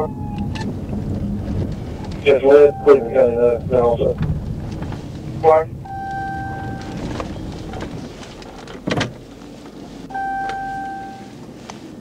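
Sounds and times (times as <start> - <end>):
car engine and road noise: 0.0 - 12.0
electronic beeps: 2.4 - 3.2, 5.8 - 7.0, 10.1 - 11.2.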